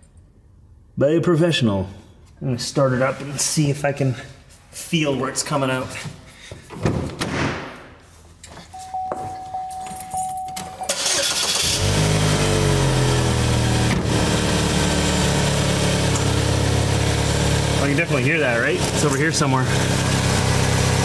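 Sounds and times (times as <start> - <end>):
thump: 6.8 - 7.8
car engine starting and idling: 10.7 - 21.0.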